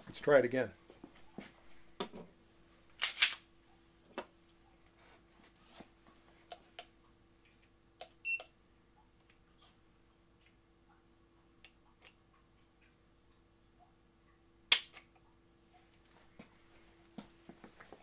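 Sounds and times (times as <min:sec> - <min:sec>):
sharp metallic pistol click: 0:03.0 - 0:03.4, 0:14.7 - 0:15.0.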